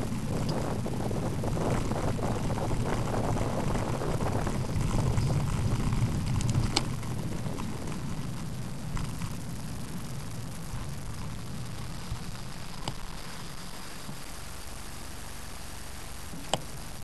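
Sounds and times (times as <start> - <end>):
wind buffeting microphone: 0.0 - 14.3.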